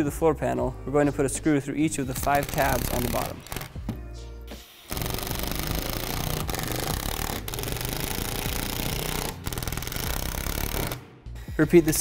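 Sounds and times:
impact driver rattling: 2.2s - 4.0s, 4.9s - 11.0s.

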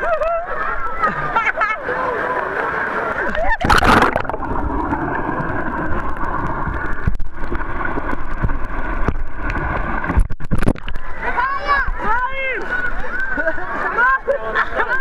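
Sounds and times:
underwater bubbling and gurgling: 0.0s - 13.8s
splashes into water: 2.1s - 6.1s.

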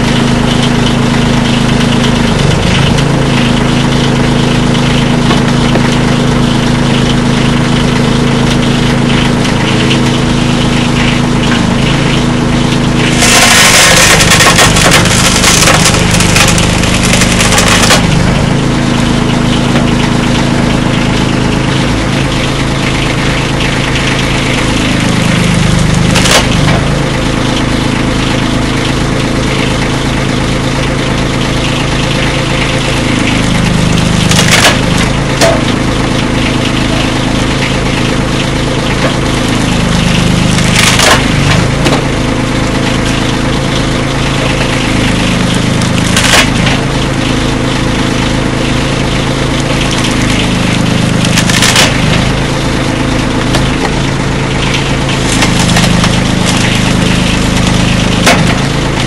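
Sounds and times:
wood splintering: 0.0s - 21.7s, 22.8s - 28.5s, 32.0s - 59.0s
engine running: 0.0s - 59.0s
sharp crack of wood: 13.0s - 18.1s, 26.1s - 26.6s, 34.3s - 35.6s, 40.5s - 42.1s, 45.8s - 46.8s, 51.2s - 52.3s, 58.2s - 58.7s.

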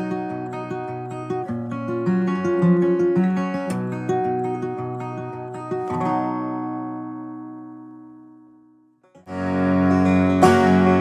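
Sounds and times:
background music: 9.3s - 11.0s.

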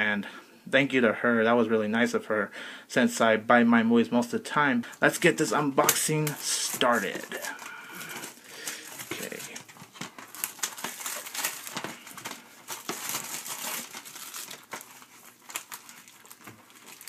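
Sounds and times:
plastic wrap tearing and crinkling: 5.3s - 17.0s.

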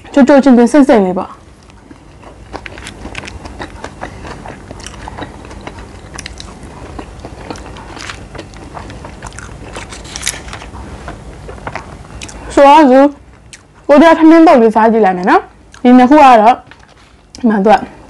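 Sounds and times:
person chewing food: 1.4s - 12.5s, 13.3s - 13.8s, 15.7s - 15.9s, 16.6s - 17.4s.

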